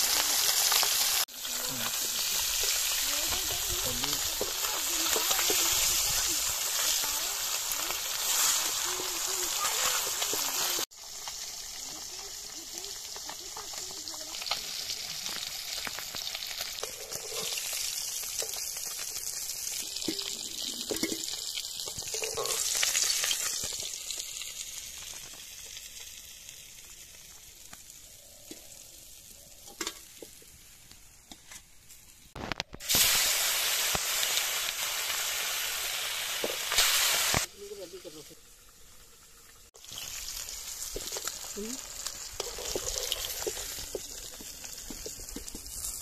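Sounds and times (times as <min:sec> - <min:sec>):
fish sizzling in hot oil: 0:00.0 - 0:46.0.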